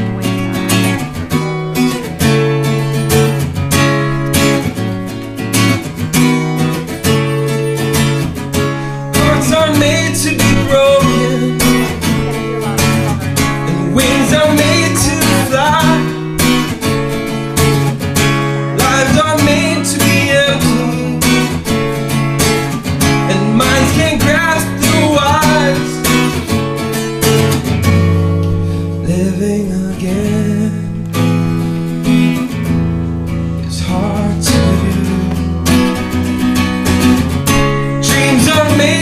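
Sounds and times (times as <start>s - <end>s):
acoustic guitar strumming: 0.0s - 39.0s
man singing: 8.8s - 17.1s, 18.6s - 21.9s, 23.0s - 26.6s, 28.9s - 32.0s, 33.6s - 36.1s, 37.6s - 39.0s.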